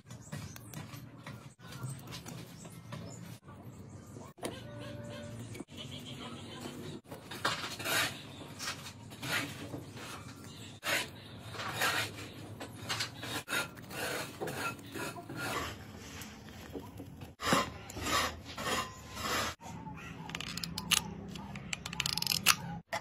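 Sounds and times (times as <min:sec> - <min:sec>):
file rasping on plastic: 0:13.1 - 0:16.0, 0:17.4 - 0:19.6.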